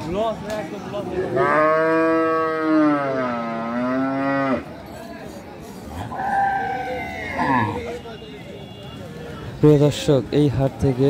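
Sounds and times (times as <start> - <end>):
cow mooing: 1.3 - 4.7, 6.1 - 7.8.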